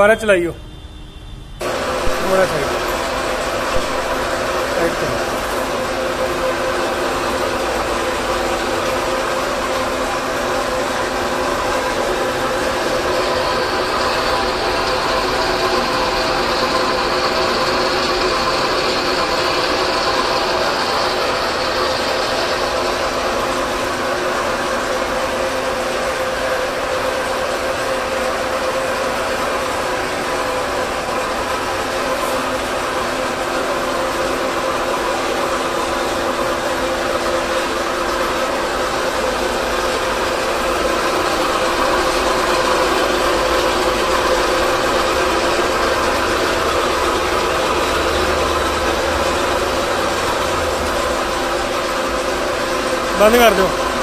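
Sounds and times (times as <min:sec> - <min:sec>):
higher whine: 0:00.0 - 0:06.0
milling machine gear whine: 0:00.0 - 0:54.0.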